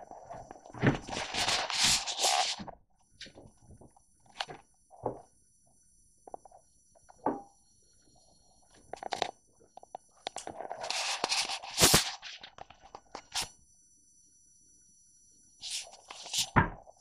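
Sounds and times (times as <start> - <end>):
rustling scrape: 0.1 - 2.7, 10.6 - 12.6.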